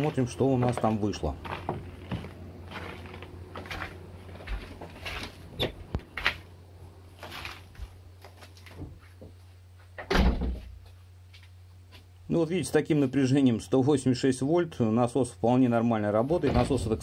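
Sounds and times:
footsteps on wooden porch: 0.0 - 6.5, 7.2 - 10.0
low steady hum: 0.0 - 17.0
door thudding shut: 10.0 - 10.7, 16.4 - 17.0.

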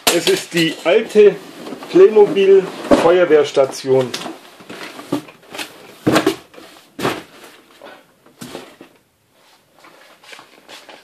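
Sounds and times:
box knocking against cardboard: 6.0 - 7.3.

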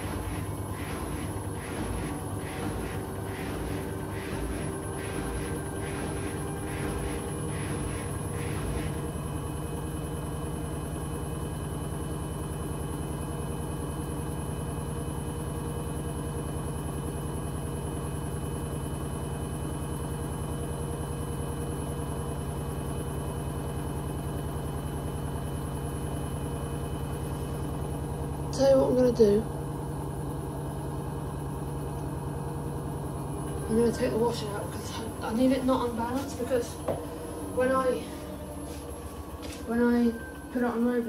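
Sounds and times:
rhythmic pulsing: 0.0 - 9.2, 33.6 - 41.0
washing machine spinning hum: 0.0 - 41.0.

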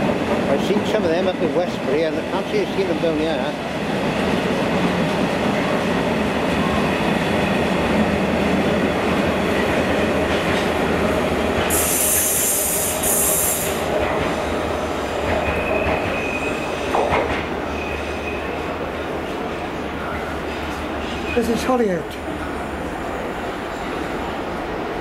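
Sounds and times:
train wheels rumbling on rails: 0.0 - 25.0
loud high hiss: 11.7 - 13.9.

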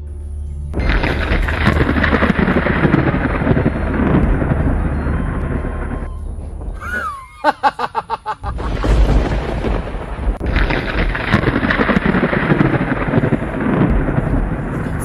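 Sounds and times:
thunder rumbling: 0.7 - 15.0
heavy rain hissing: 6.8 - 15.0.

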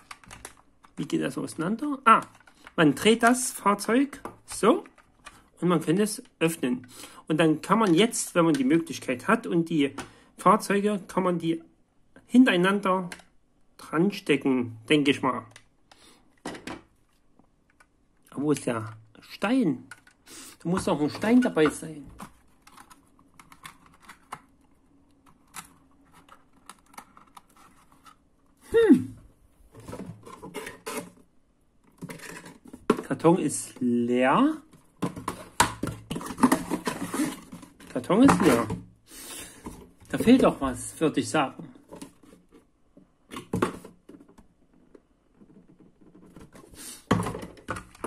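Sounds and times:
cardboard rustling and scraping: 25.8 - 28.2, 29.6 - 31.2, 34.7 - 38.8.

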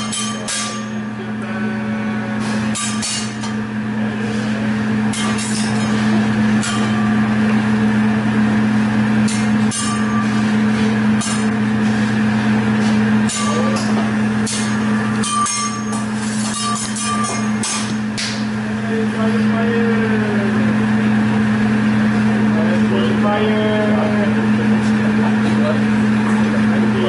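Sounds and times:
metal utensils clanking on griddle: 0.0 - 1.0, 2.4 - 3.6, 5.1 - 7.1, 13.3 - 18.0.

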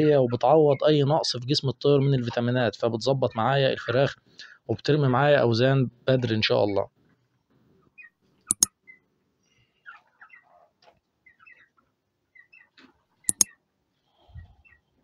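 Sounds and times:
sharp double clicks: 8.5 - 8.7, 13.3 - 13.5
chickens calling: 8.9 - 13.7.

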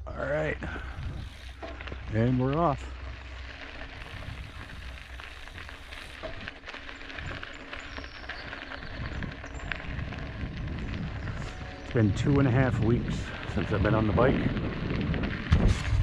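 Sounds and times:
bike tyres on dirt: 0.0 - 16.0
bike rattling and clicking: 0.1 - 16.0
wind rumble on microphone: 0.6 - 16.0.

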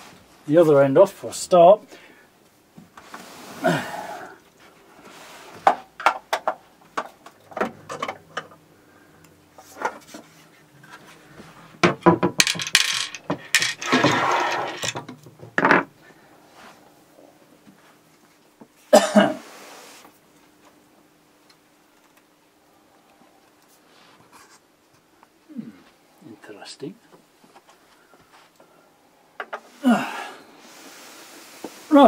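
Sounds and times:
metal scraping: 12.9 - 15.0.

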